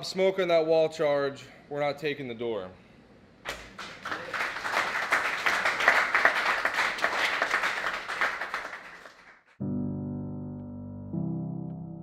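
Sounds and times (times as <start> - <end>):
audience applauding: 3.5 - 9.6.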